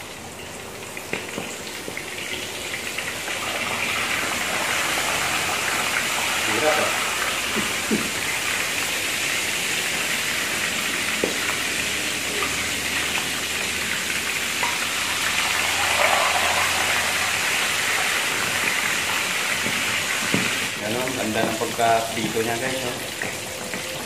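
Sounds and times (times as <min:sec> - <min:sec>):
meat sizzling in hot oil: 0:00.0 - 0:24.0.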